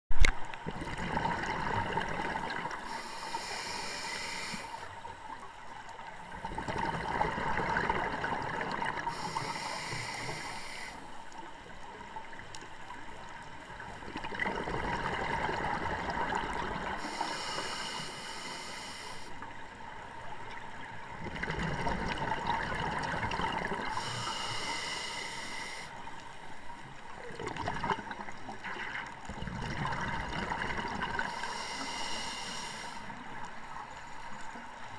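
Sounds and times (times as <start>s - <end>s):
exhaled bubbles rumbling: 0.6s - 2.9s, 6.2s - 9.2s, 13.9s - 17.0s, 21.1s - 24.0s, 27.2s - 31.3s
regulator inhale hiss: 2.7s - 5.0s, 9.0s - 11.2s, 16.8s - 19.5s, 23.8s - 26.1s, 31.2s - 33.3s.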